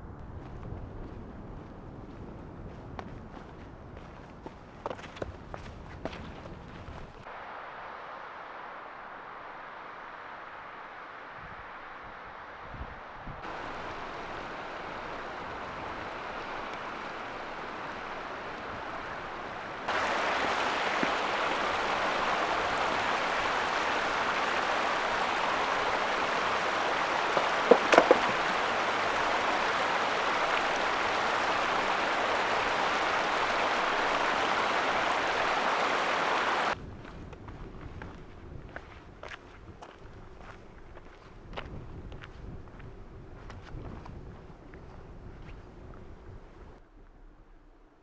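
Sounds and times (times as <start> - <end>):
stream rushing over rocks: 13.4 - 36.8
sharp knocks: 27.3 - 28.6.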